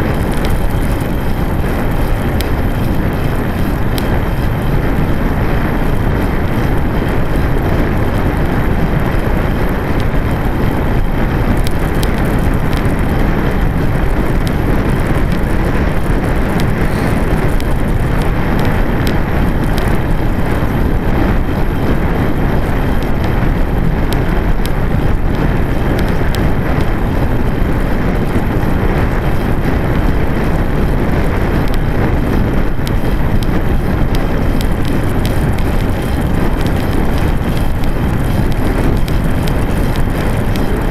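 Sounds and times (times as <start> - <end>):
bike tyres rolling on tarmac: 0.0 - 40.9
wind rush on microphone: 0.0 - 40.9.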